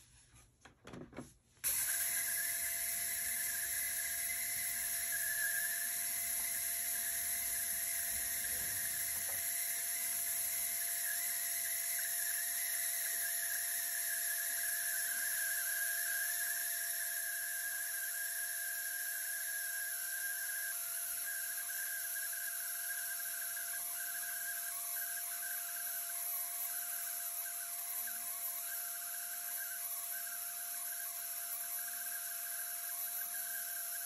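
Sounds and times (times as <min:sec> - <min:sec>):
record cleaner whine and hiss: 0:01.1 - 0:12.4.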